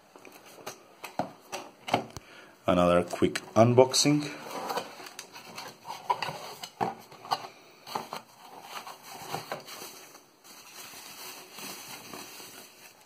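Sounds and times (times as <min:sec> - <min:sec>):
plastic wrapping rustling: 0:04.1 - 0:13.0.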